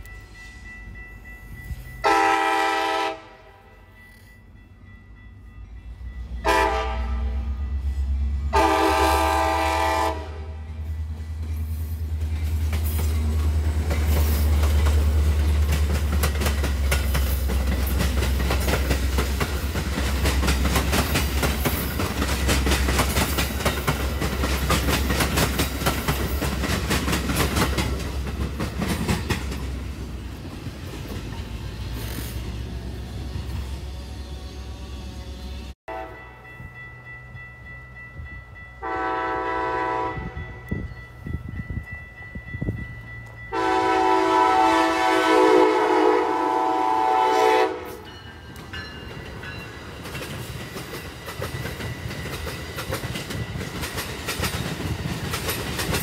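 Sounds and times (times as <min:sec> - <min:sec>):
train horn blasts: 0:02.0 - 0:03.8, 0:06.4 - 0:10.9, 0:35.9 - 0:36.4, 0:38.8 - 0:40.7, 0:43.5 - 0:48.1
locomotive engine rumbling: 0:04.5 - 0:56.0
train wheels clattering over rails: 0:11.2 - 0:32.5, 0:48.5 - 0:56.0.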